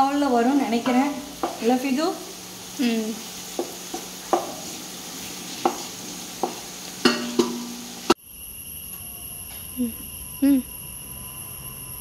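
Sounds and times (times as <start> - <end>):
onions sizzling in oil: 0.0 - 8.2
wooden spatula knocking pot: 0.8 - 1.8, 3.5 - 4.8, 5.6 - 7.9.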